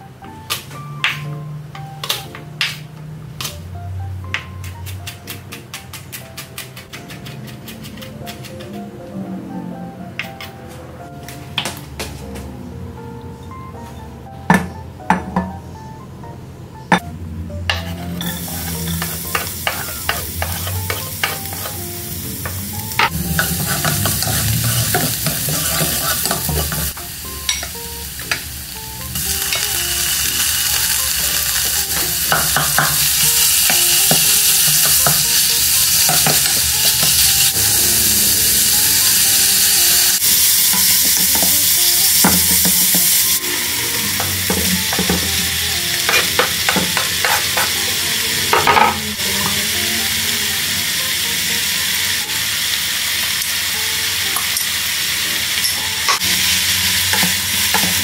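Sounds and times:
meat sizzling in hot oil: 17.8 - 48.5, 49.2 - 58.0
wooden spatula scraping a pan: 23.1 - 26.9.

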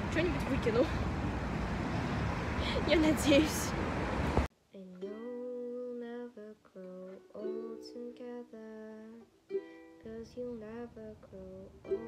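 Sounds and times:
person singing: 4.8 - 9.3, 9.9 - 12.0.

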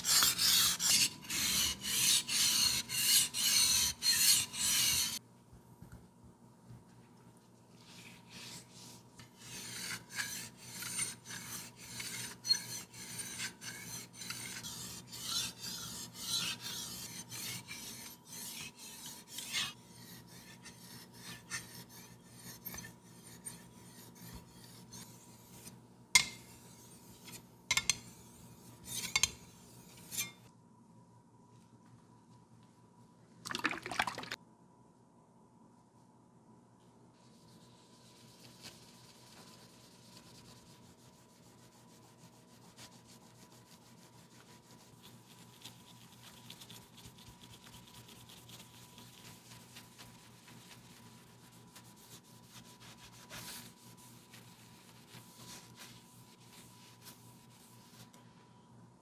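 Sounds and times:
blade scraping on whetstone: 0.0 - 5.2, 8.3 - 30.5.

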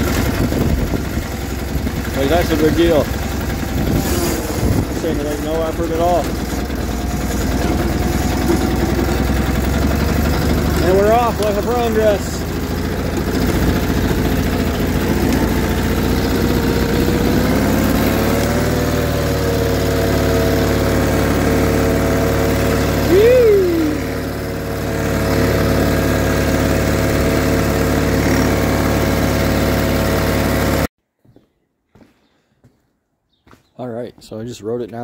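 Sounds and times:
garden tractor engine running: 0.0 - 30.9.

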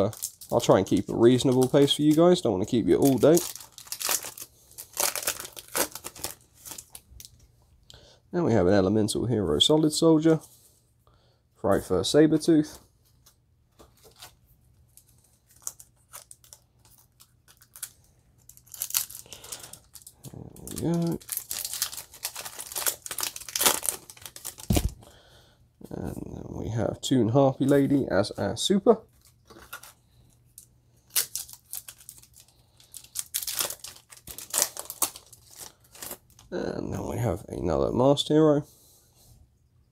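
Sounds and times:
wrapper crinkling and tearing: 0.0 - 7.4, 14.0 - 25.1, 29.1 - 36.5.

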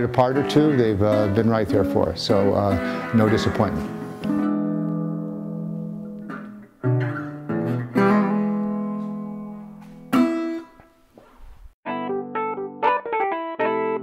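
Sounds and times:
resonator guitar chords: 0.0 - 10.7, 11.9 - 14.0.

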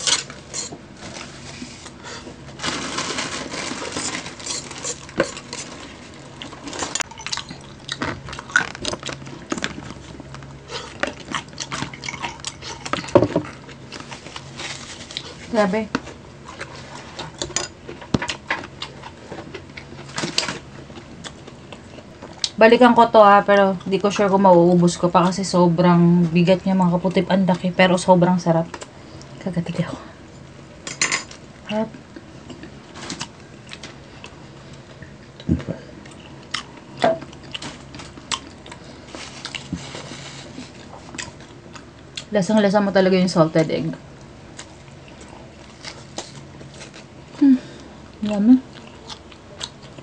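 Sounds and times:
chewing: 4.0 - 22.6, 32.1 - 42.3, 44.5 - 47.1, 47.8 - 50.0.

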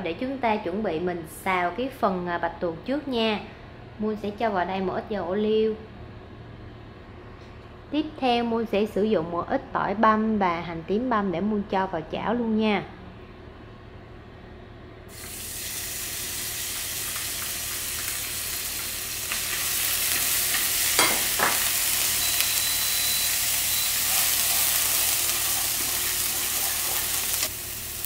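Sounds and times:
garlic sizzling in oil: 15.1 - 28.0.

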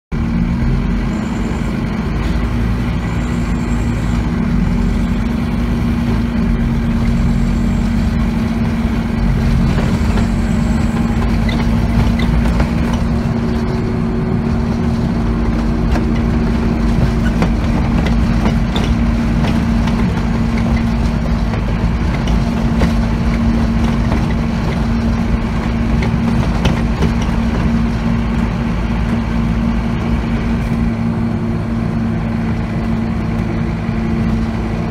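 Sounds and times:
bus engine drone: 0.1 - 34.9
low road rumble: 0.1 - 34.9
light clicks and knocks in cabin: 9.6 - 13.3, 15.5 - 27.9.

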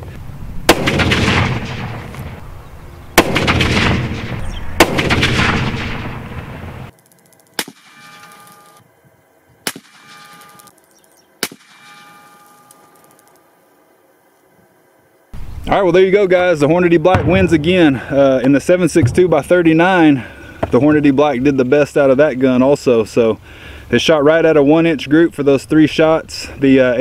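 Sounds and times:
rifle shots echoing: 0.7 - 2.5, 3.1 - 6.9, 7.6 - 8.8, 9.6 - 10.7, 11.4 - 12.4
sharp ticks: 6.9 - 8.8, 9.7 - 13.5.

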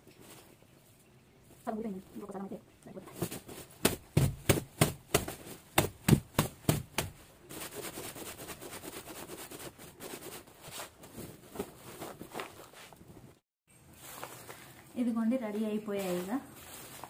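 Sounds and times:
rustling of garlic skins: 9.7 - 17.0.

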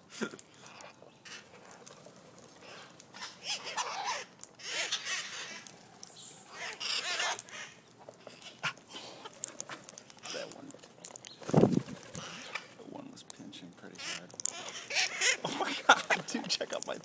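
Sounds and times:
parakeets squawking: 0.5 - 17.0.

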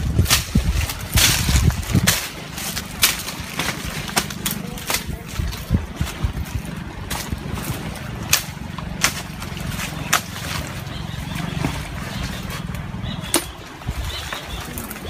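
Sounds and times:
footsteps through dry undergrowth: 0.0 - 13.1
low steady rumble: 0.0 - 15.0
twigs snapping: 0.1 - 6.4, 7.0 - 10.8.

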